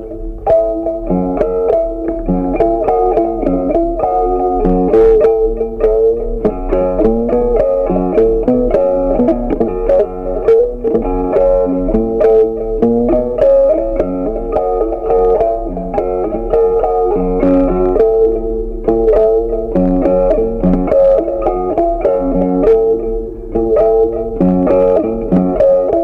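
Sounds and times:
plucked guitar music with bass: 0.0s - 26.0s.

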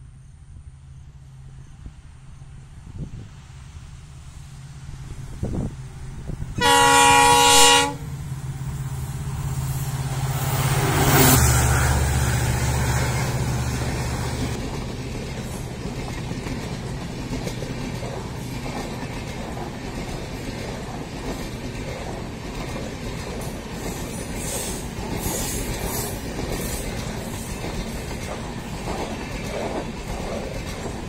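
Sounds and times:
train coaches rumbling on rails: 0.0s - 31.0s
locomotive horn blast: 6.6s - 8.1s.

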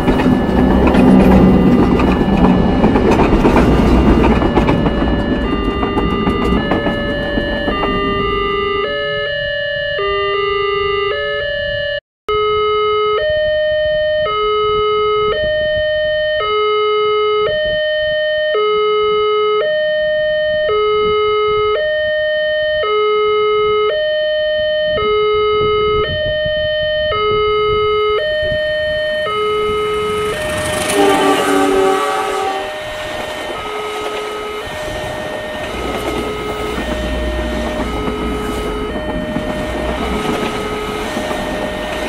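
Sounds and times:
approaching train rushing: 0.0s - 9.4s, 28.3s - 42.0s
two-tone crossing alarm: 0.0s - 42.0s
train horn: 28.4s - 42.0s.

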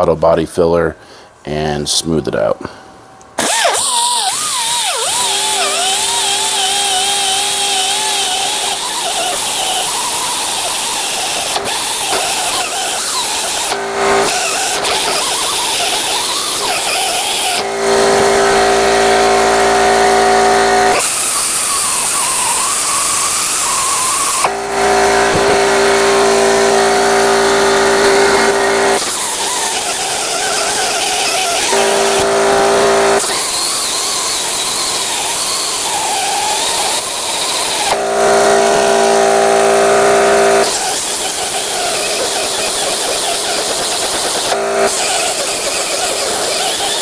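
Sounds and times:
die grinder grinding metal: 3.4s - 47.0s.

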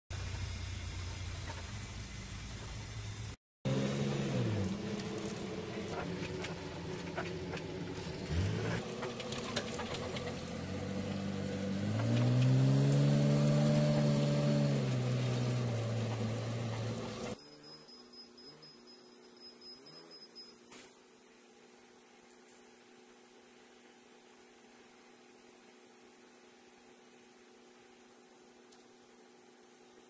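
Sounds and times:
diesel truck engine: 2.8s - 17.4s
cab rattles: 5.8s - 10.9s.

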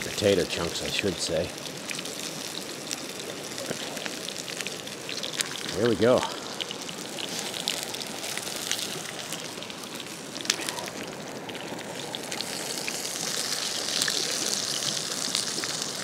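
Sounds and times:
creek water flowing: 0.0s - 16.0s
wood fire crackling and popping: 0.0s - 16.0s.

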